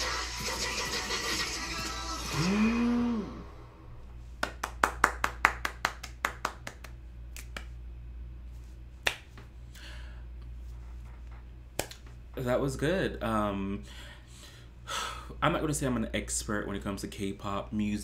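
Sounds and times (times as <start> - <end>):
hands clapping lightly: 4.4 - 7.8, 9.0 - 9.5, 10.7 - 12.3.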